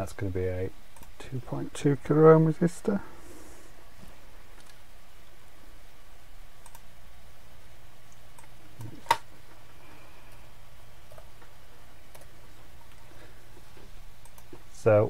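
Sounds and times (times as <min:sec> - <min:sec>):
faint low hum: 0:00.0 - 0:15.0
computer mouse and keyboard clicks: 0:08.1 - 0:09.3, 0:11.1 - 0:11.5, 0:12.1 - 0:13.1, 0:14.2 - 0:14.6.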